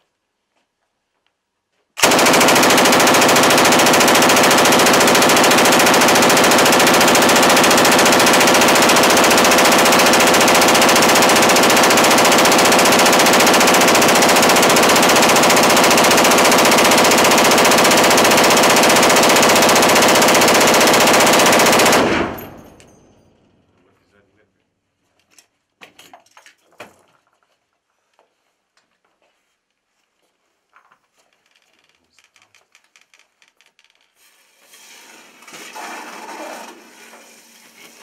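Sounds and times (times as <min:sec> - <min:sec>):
machine gun automatic fire: 0:02.0 - 0:22.9.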